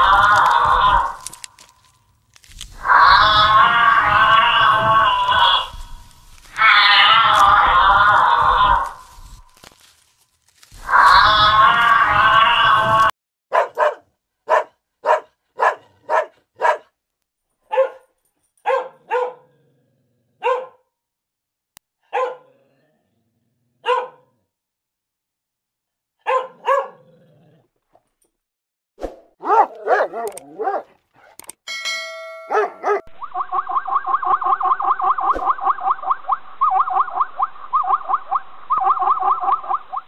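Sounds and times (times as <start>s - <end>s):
large dog barking: 13.5s - 17.0s, 17.6s - 19.7s, 20.3s - 20.9s, 22.0s - 22.7s, 23.8s - 24.5s, 26.2s - 27.4s, 29.4s - 31.4s, 32.4s - 33.1s.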